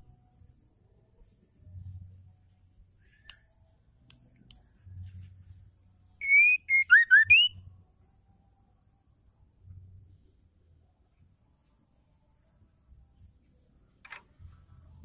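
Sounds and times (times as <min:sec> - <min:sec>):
bird whistling song: 0:06.2 - 0:07.6.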